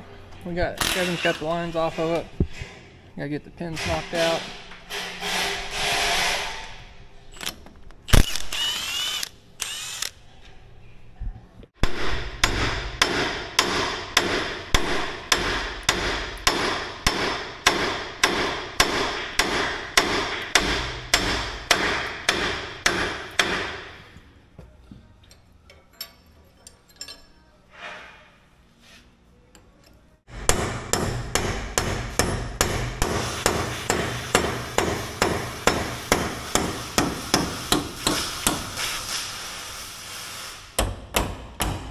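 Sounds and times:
hammer striking steel: 0:11.8 - 0:24.0, 0:30.3 - 0:38.8.

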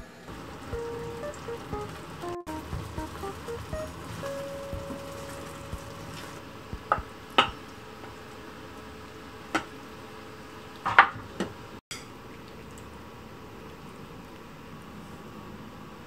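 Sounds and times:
faint steady hiss: 0:00.0 - 0:16.0.

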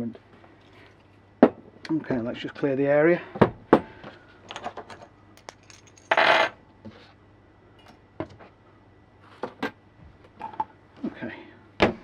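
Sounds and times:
metal terminals clinking: 0:04.5 - 0:06.2.

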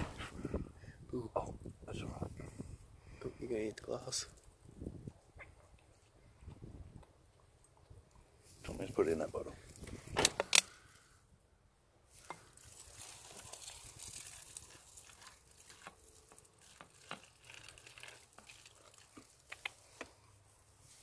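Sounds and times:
plastic bottle crackling: 0:12.1 - 0:20.2.

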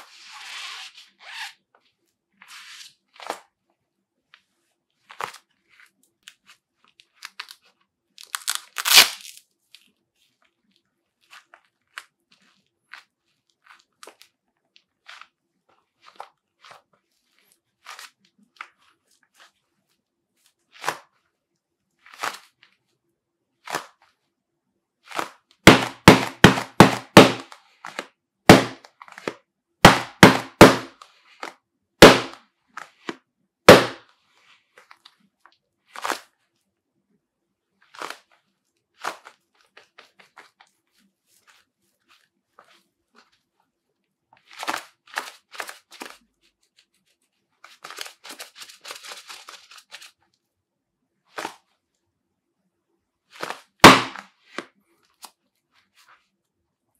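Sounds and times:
gloves patting and rustling: 0:00.0 - 0:24.4, 0:25.0 - 0:36.8, 0:37.7 - 0:50.4, 0:51.3 - 0:51.9, 0:53.2 - 0:56.6
gloves clapping together: 0:25.2 - 0:31.0, 0:33.7 - 0:34.0.

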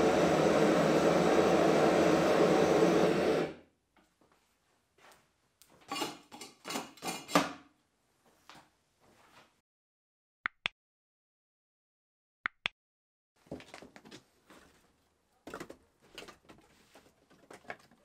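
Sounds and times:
gas burner roaring: 0:00.0 - 0:03.6.

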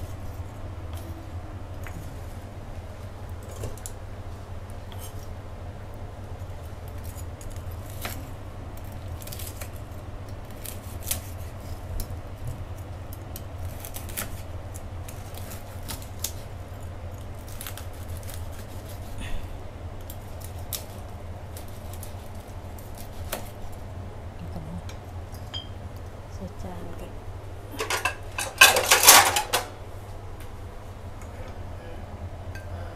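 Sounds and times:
steady low hum: 0:00.0 - 0:32.9
knife crunching through crispy pork: 0:06.4 - 0:19.2, 0:20.0 - 0:23.8.

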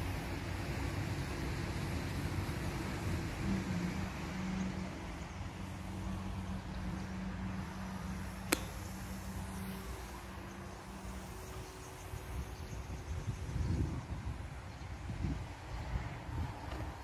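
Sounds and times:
distant model plane motor droning: 0:00.0 - 0:17.0
outdoor background noise: 0:00.0 - 0:17.0
sharp click: 0:08.5 - 0:08.8.

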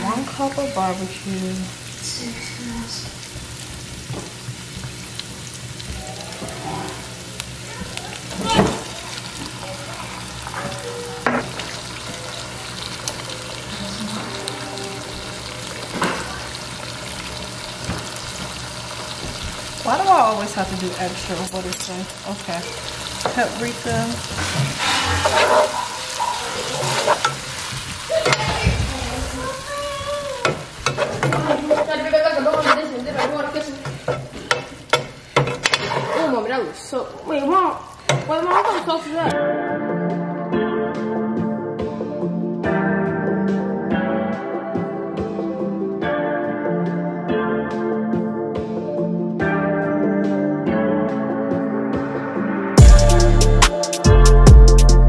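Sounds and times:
food sizzling in a frying pan: 0:00.0 - 0:39.3
metal spoon scraping a pan: 0:24.3 - 0:27.5, 0:30.4 - 0:36.5, 0:38.1 - 0:39.2.

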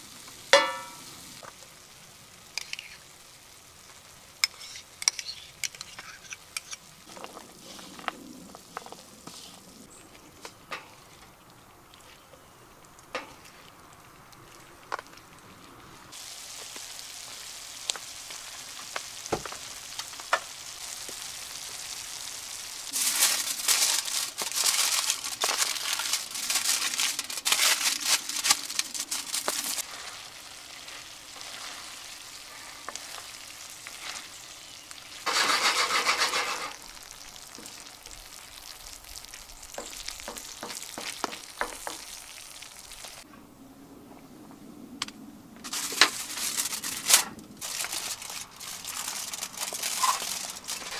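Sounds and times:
food sizzling in skillet: 0:00.0 - 0:08.0, 0:16.1 - 0:43.3
wooden spatula scraping and tapping: 0:04.4 - 0:09.6, 0:35.3 - 0:36.8.

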